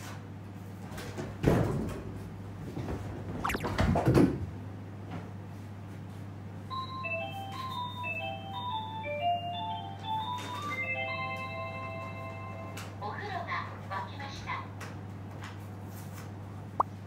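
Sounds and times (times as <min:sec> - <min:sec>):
music-box melody: 0:06.8 - 0:12.7.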